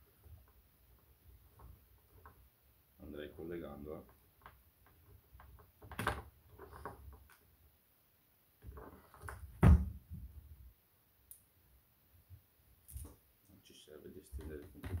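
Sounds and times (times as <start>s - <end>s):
cable handling knocks and rustles: 14.3s - 15.0s.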